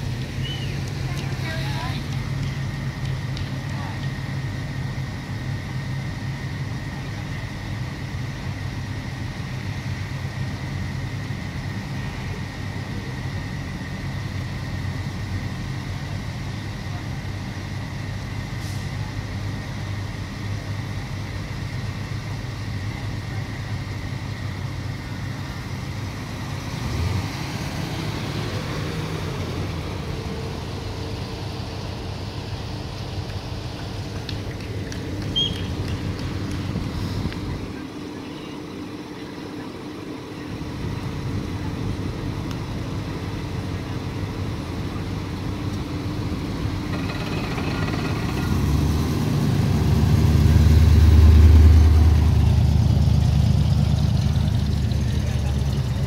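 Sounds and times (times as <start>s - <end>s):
car engines idling: 0.0s - 56.0s
car pulling away: 0.0s - 56.0s.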